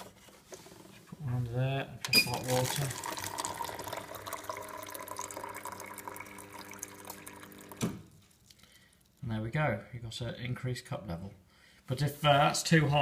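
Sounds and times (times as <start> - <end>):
hot water pouring into cup: 2.2 - 8.1.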